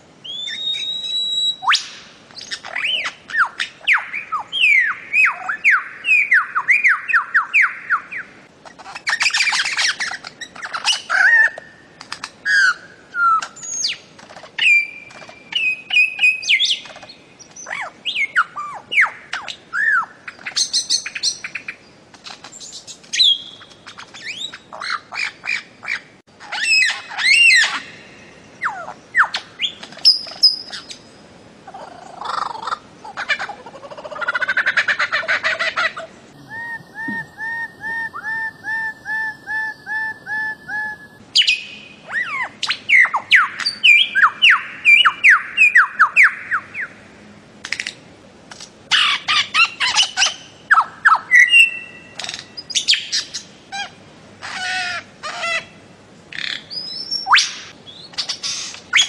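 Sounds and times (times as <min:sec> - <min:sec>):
bird whistled notes: 0:00.2 - 0:07.7, 0:36.5 - 0:46.4
bird harsh squawking calls: 0:00.2 - 0:21.7, 0:22.6 - 0:31.0, 0:31.6 - 0:47.0, 0:48.9 - 0:59.0.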